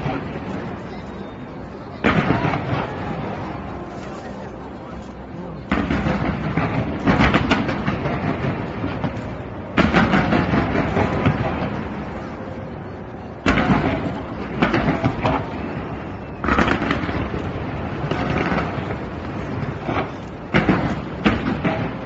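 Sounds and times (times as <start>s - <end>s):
firework crackling: 0.0s - 12.8s, 13.4s - 22.0s
firework booms: 2.0s - 3.8s, 5.7s - 12.2s, 13.4s - 22.0s.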